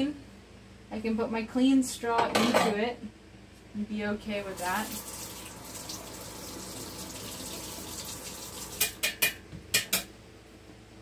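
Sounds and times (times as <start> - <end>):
tap water running into sink: 4.5 - 9.4
small hard items clicking in sink: 8.7 - 10.1.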